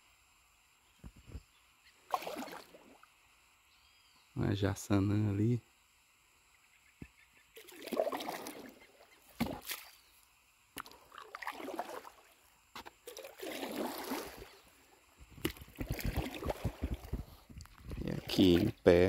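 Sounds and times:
paddle sloshing through water: 2.1 - 3.0, 7.6 - 10.0, 10.8 - 18.8.

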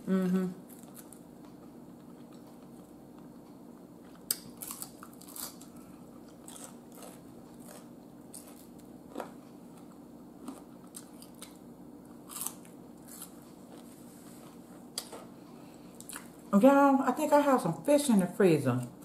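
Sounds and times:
faint steady hum: 0.0 - 19.0
crunching fried food: 4.0 - 16.4.

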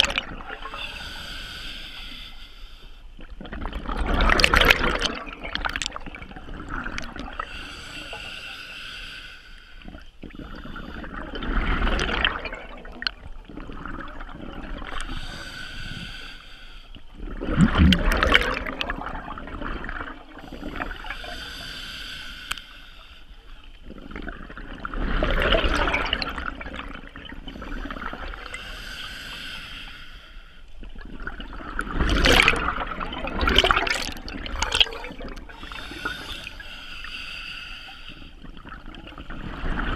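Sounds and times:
exhaled bubbles rushing: 0.0 - 0.8, 3.3 - 7.4, 10.4 - 15.0, 17.2 - 21.1, 23.9 - 28.6, 31.0 - 35.7
regulator hissing inhale: 0.7 - 3.0, 7.4 - 9.9, 15.0 - 17.0, 20.4 - 23.5, 28.4 - 30.7, 34.6 - 38.4.

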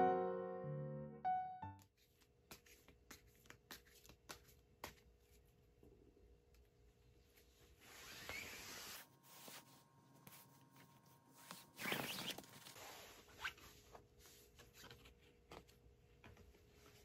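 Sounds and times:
cards sliding across bed cover: 7.7 - 15.1.

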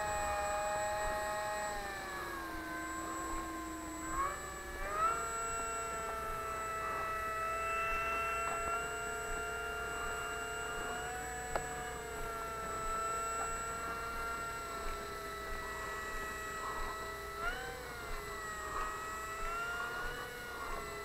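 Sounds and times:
model plane motor whine: 0.0 - 21.0.

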